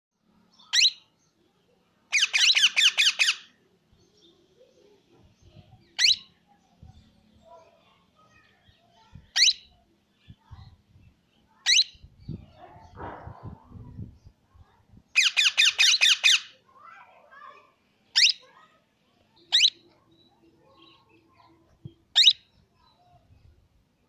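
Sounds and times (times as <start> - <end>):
parakeet squawking: 0.7 - 1.0, 2.1 - 3.5, 6.0 - 6.3, 9.4 - 9.7, 11.7 - 12.0, 15.2 - 16.6, 18.1 - 18.5, 19.5 - 19.9, 22.1 - 22.5.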